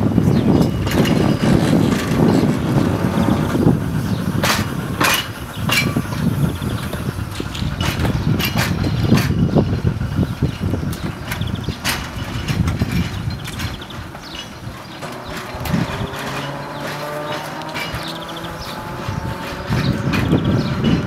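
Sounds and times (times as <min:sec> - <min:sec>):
electric tram rumbling: 0:00.0 - 0:21.0
tram wheels clicking on track: 0:00.0 - 0:21.0.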